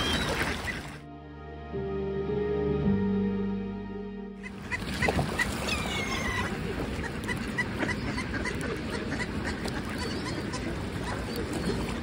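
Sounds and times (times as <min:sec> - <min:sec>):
ducks and gulls calling: 0:00.0 - 0:01.0, 0:04.4 - 0:12.0
rush of wings and water: 0:00.0 - 0:01.0, 0:04.5 - 0:12.0.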